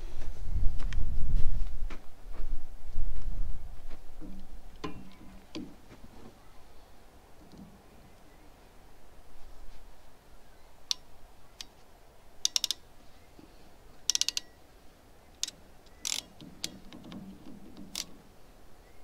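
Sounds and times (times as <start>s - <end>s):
crimping tool clicking: 12.4s - 12.8s, 14.1s - 14.5s.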